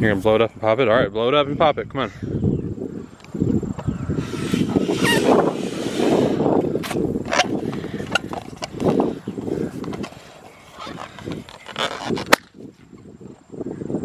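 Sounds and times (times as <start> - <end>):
breath noises: 3.9 - 11.8
rustling: 4.2 - 12.5
balloon popping: 4.3 - 8.8.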